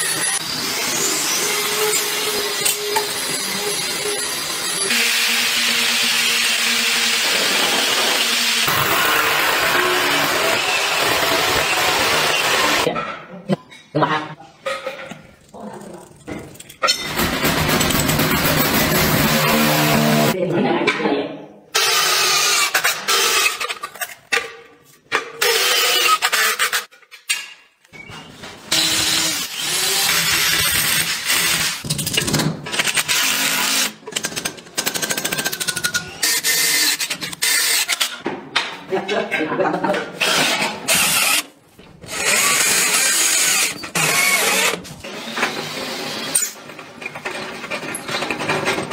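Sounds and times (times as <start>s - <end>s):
impact drill grinding into stone: 42.1s - 46.6s.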